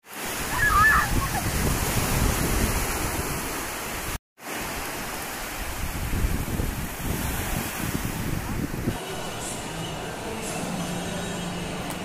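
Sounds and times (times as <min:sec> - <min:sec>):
surf washing up beach: 0:00.0 - 0:12.0
wind rumble on microphone: 0:00.5 - 0:03.6, 0:05.6 - 0:09.0.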